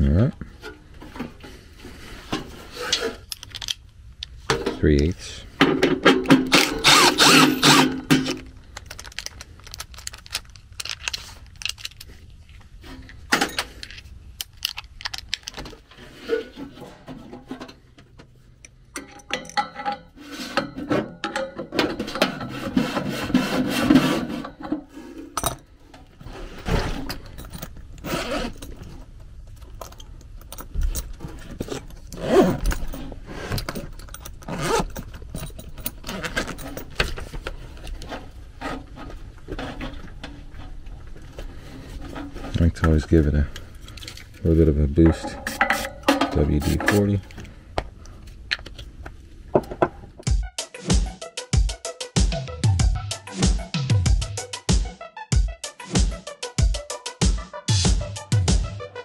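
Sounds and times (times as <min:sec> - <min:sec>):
tools rattling in a bag: 0:06.3 - 0:12.3, 0:26.4 - 0:38.4.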